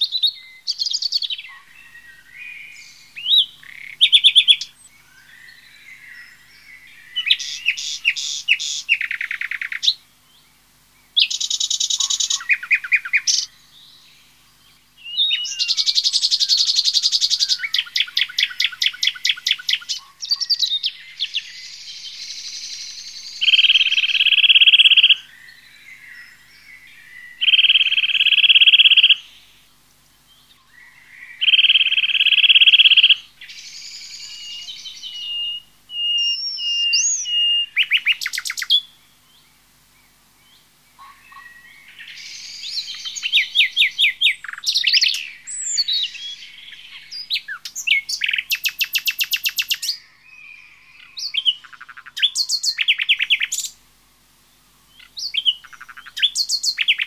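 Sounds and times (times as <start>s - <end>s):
bird whistles and chirps: 0.0s - 4.9s, 15.0s - 25.2s, 31.4s - 38.9s, 41.3s - 53.7s, 55.2s - 57.0s
rapid rattling bird trills: 0.0s - 29.6s, 30.4s - 38.8s, 40.7s - 50.0s, 51.0s - 53.8s, 54.9s - 57.0s.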